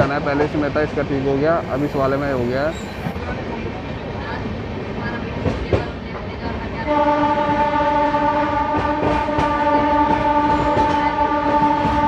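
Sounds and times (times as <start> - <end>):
train rumble and rail clatter: 0.0 - 12.0
train horn blast: 6.8 - 12.0.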